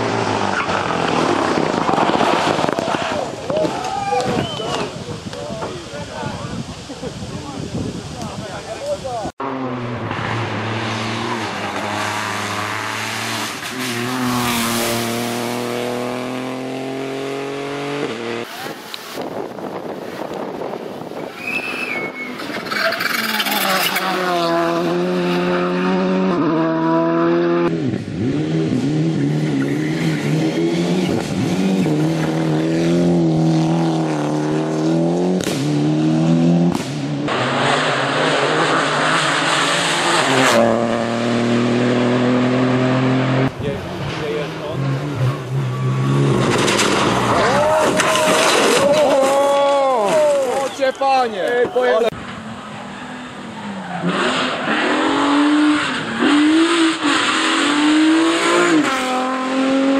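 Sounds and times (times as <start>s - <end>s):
tyre noise on tarmac: 0.0s - 9.4s, 10.0s - 25.2s, 43.4s - 55.2s
rally car engines revving: 0.0s - 59.9s.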